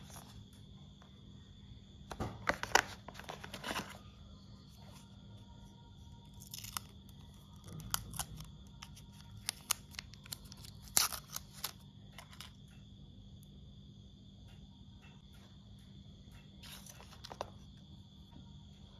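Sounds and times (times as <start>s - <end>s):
faint steady hum: 0.0s - 18.9s
plastic film crinkling: 6.4s - 12.6s.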